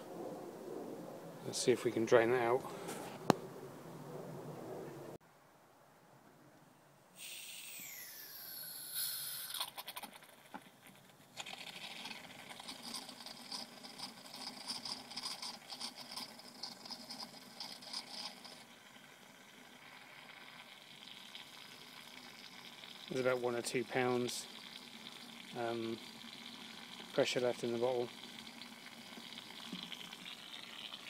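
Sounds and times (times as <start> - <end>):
gas hissing from a hose: 7.2 - 9.8
oil spitting and sputtering: 7.2 - 31.0.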